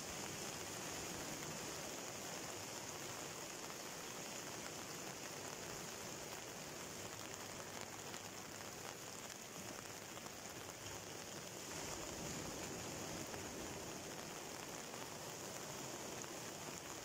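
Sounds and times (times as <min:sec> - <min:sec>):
surf washing over rocks: 0:00.0 - 0:17.0.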